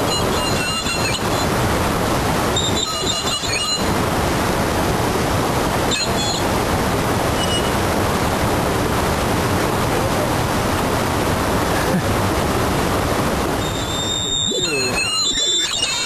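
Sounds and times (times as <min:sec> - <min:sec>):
high-pitched squeal: 0:00.0 - 0:01.9, 0:02.5 - 0:04.1, 0:05.8 - 0:06.6, 0:07.3 - 0:07.9, 0:13.5 - 0:16.0
mountain river rushing: 0:00.0 - 0:16.0.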